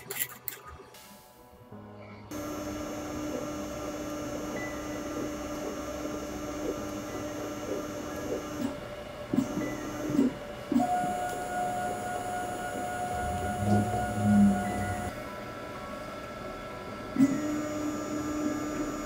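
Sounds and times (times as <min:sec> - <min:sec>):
machine whine: 0:02.3 - 0:19.0.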